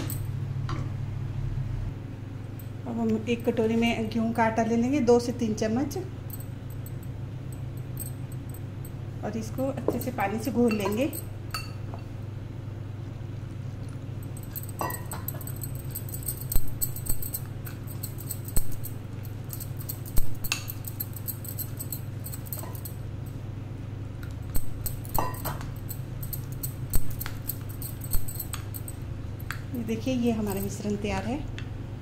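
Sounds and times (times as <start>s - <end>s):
steady low hum: 0.0s - 32.0s
spoon clinking against glass bowl: 9.8s - 11.8s, 14.5s - 23.0s, 24.6s - 28.9s.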